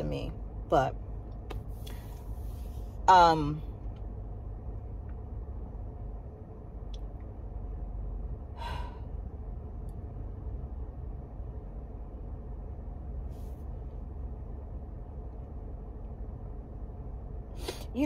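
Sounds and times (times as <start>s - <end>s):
car interior rumble: 0.0s - 18.0s
woman breathing: 1.7s - 2.9s, 8.5s - 9.2s
woman sighing: 8.6s - 9.1s.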